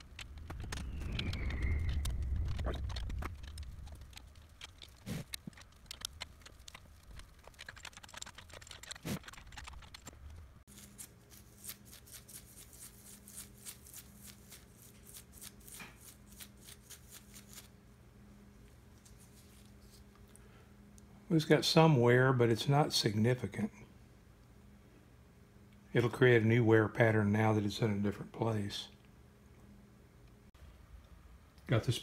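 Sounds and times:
brush ticking and scraping on gear: 0.0 - 17.7
faint steady hum: 0.0 - 32.0.

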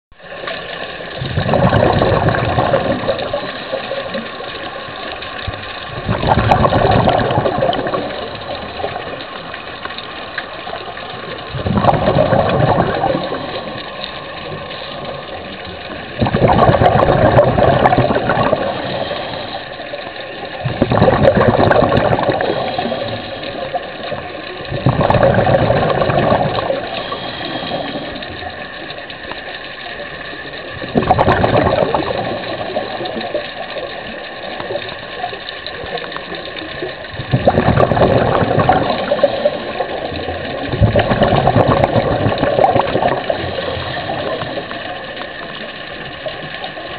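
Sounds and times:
exhaled bubbles rushing: 0.2 - 46.9
regulator hiss: 18.3 - 20.6, 22.2 - 24.6, 26.3 - 30.9.

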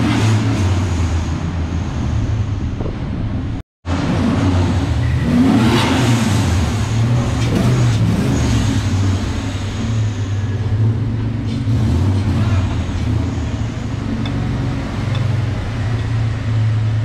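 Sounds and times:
car engine idling: 12.1 - 17.0.

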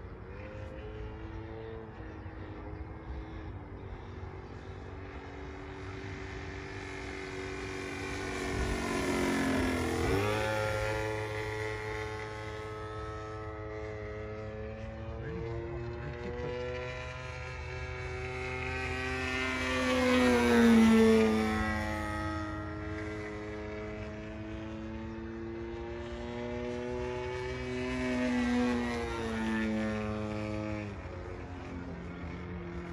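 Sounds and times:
model aeroplane motor buzzing: 0.0 - 25.3.

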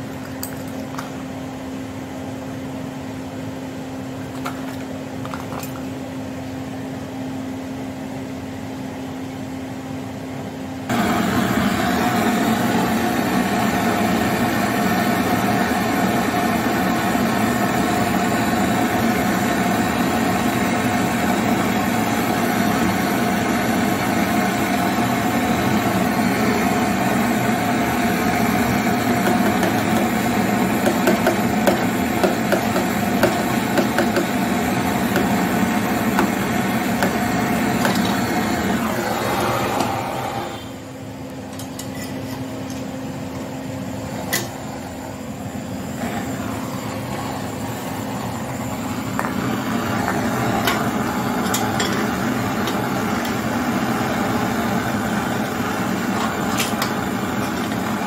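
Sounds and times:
torch flame hissing: 10.9 - 40.8, 44.1 - 58.0.

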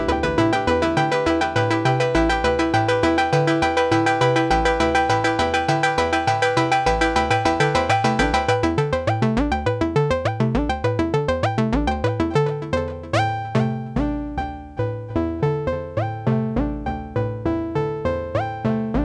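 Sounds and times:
stepping bass line: 0.0 - 17.8
synthesizer plucked notes: 0.0 - 19.0.

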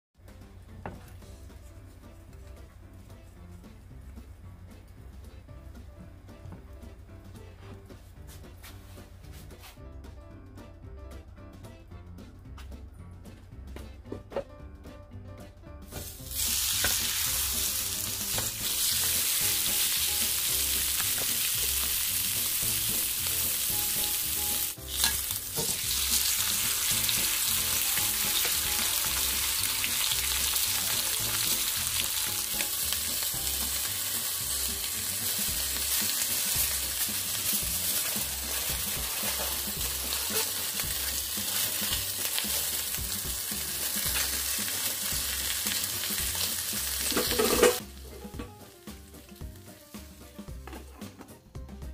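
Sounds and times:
pork roast sizzling in oil: 15.8 - 50.8.

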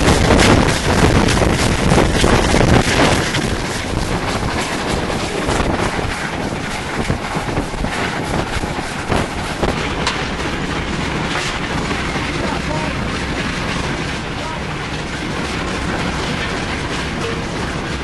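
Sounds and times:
locomotive clatter and knocks: 0.0 - 18.0
wind rushing over microphone: 0.0 - 18.0.

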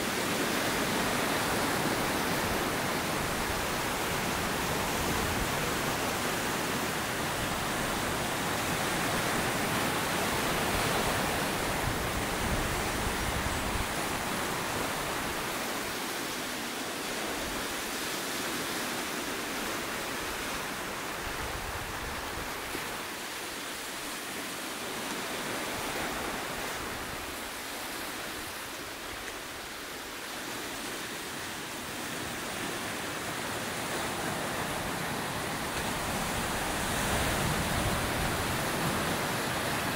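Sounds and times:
surf breaking over rocks: 32.2 - 39.9.

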